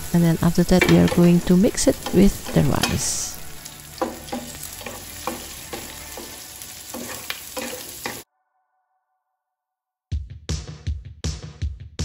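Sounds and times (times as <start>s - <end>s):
food sizzling in a frying pan: 0.0s - 8.2s
spatula scraping a pan: 0.8s - 8.2s.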